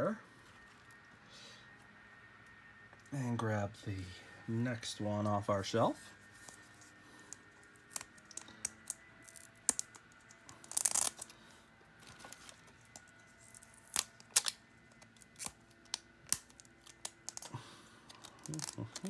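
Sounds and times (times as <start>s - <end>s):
packaging rustle: 12.0s - 19.0s.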